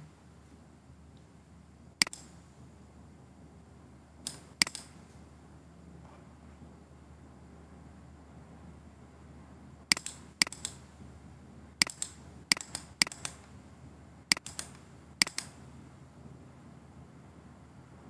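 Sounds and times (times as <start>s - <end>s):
low steady hum: 0.0s - 18.0s
computer mouse button clicks: 2.0s - 2.3s, 4.3s - 4.9s, 9.9s - 10.8s, 11.8s - 13.4s, 14.3s - 15.5s.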